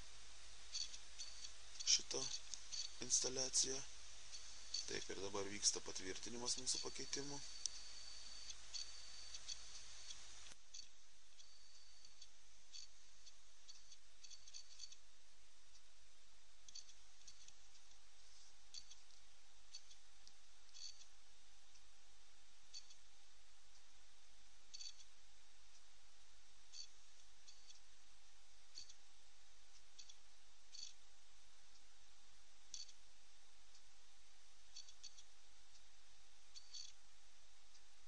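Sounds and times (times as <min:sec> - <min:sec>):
steady hiss: 0:00.0 - 0:10.6
faint hum: 0:00.0 - 0:38.0
faint irregular clicking: 0:00.7 - 0:15.0, 0:16.6 - 0:18.0, 0:18.7 - 0:21.9, 0:22.7 - 0:23.1, 0:24.7 - 0:25.9, 0:26.7 - 0:27.9, 0:28.7 - 0:29.1, 0:29.7 - 0:31.0, 0:32.7 - 0:33.0, 0:34.7 - 0:35.9, 0:36.5 - 0:37.0.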